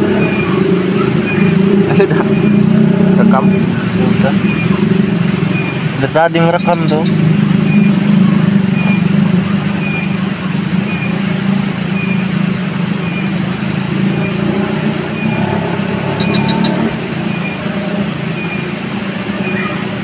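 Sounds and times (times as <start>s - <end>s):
short high chirp: 15.2s - 19.8s.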